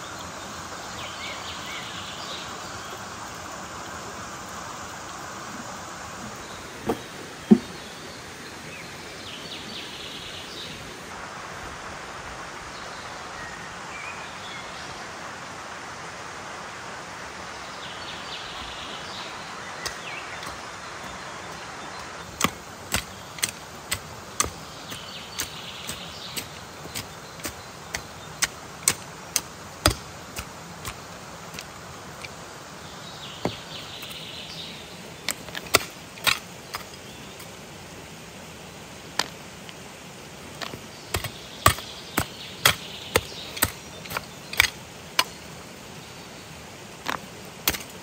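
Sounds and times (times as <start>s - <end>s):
stream rushing: 0.0s - 48.0s
shovel chopping into stony soil: 19.8s - 32.3s, 35.3s - 37.5s, 40.6s - 45.4s, 47.0s - 48.0s.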